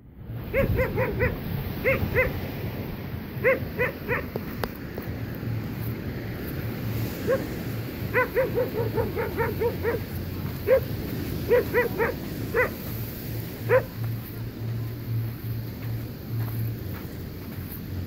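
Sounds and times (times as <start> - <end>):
dog barking: 0.5 - 2.4, 3.4 - 4.4, 7.2 - 7.5, 8.1 - 12.9, 13.6 - 14.0.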